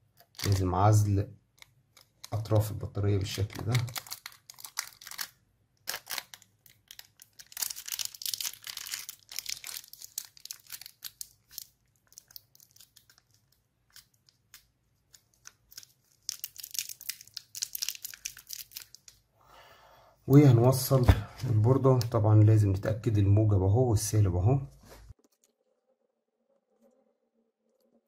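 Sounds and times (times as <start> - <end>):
tape crinkling: 0.1 - 0.7, 1.5 - 19.3
tape tearing and rustling: 3.5 - 19.2.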